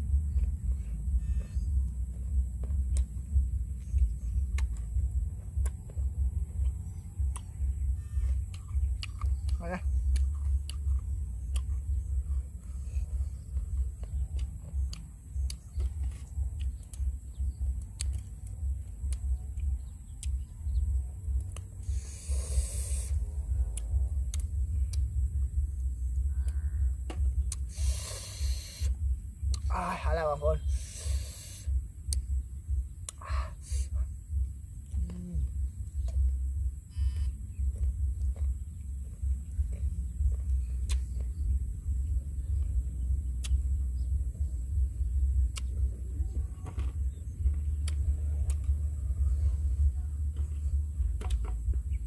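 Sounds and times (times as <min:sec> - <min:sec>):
sharp clicks: 0:14.0 - 0:20.5, 0:21.3 - 0:25.2, 0:43.3 - 0:43.7
brief hiss: 0:27.7 - 0:28.9.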